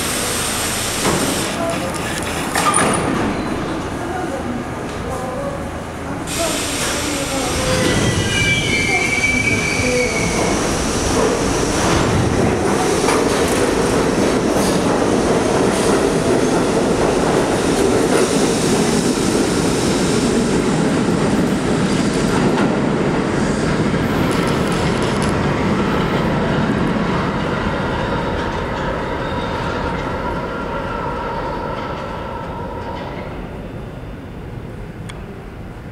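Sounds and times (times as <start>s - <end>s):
subway train rolling on rails: 0.0s - 35.9s.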